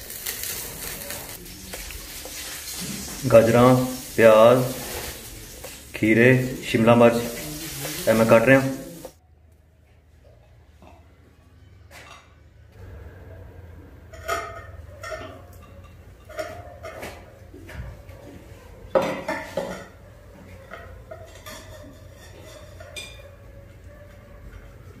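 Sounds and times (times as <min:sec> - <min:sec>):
knife and dishes knocking: 0:19.0 - 0:20.0, 0:20.6 - 0:23.3.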